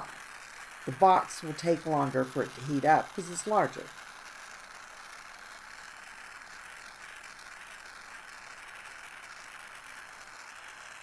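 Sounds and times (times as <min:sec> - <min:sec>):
torch flame hissing: 0:00.0 - 0:11.0.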